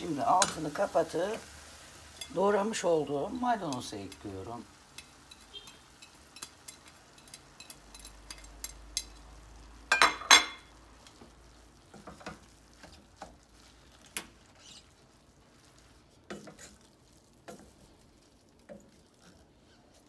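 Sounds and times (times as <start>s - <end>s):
wooden spoon scraping a pot: 11.9s - 20.0s.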